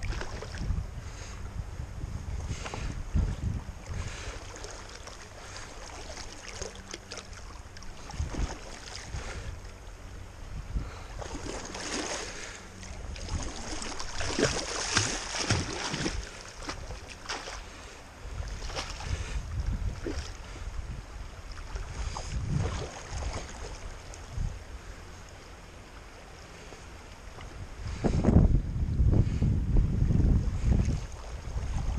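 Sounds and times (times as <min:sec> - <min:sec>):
wind buffeting microphone: 0:00.0 - 0:06.4, 0:07.7 - 0:25.0, 0:27.3 - 0:31.9
river current rushing: 0:03.8 - 0:19.4
fish thrashing and splashing: 0:11.2 - 0:17.7.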